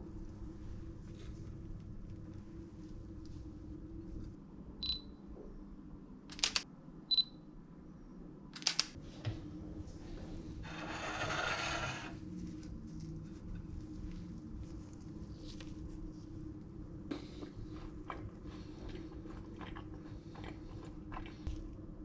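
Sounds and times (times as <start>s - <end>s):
rustling and scraping: 10.0s - 16.3s.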